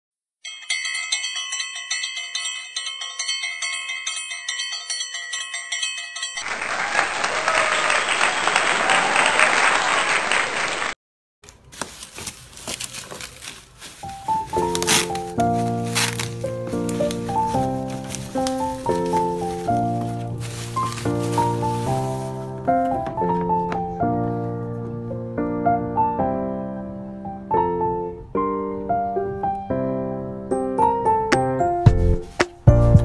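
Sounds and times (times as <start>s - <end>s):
bell-like jingle: 0.4s - 6.5s
applause: 6.4s - 11.0s
bubble wrap crinkling: 11.4s - 22.6s.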